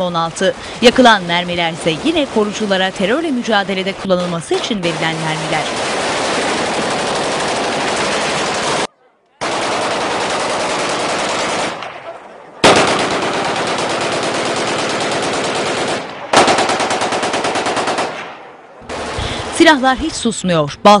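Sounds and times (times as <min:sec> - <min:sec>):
automatic gunfire bursts: 0:04.8 - 0:19.2.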